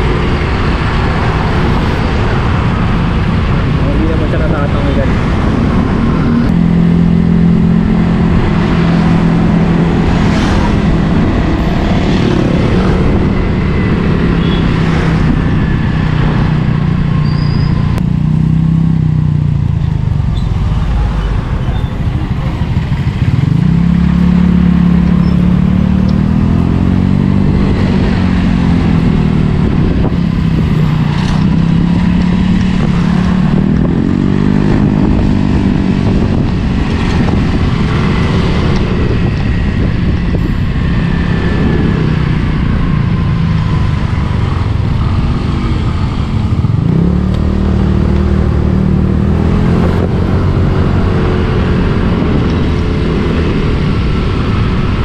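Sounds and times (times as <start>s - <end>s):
motorcycle engine running: 16.5s - 55.0s.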